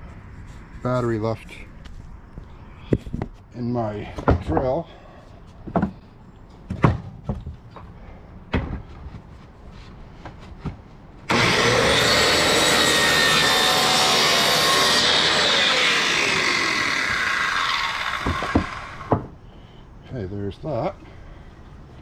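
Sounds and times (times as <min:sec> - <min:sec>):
wood knocking: 0:18.2 - 0:19.3.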